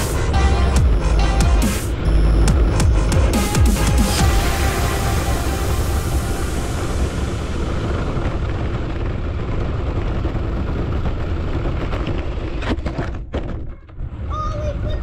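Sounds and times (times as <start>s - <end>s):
toy car rumbling over gravel: 7.8s - 13.7s.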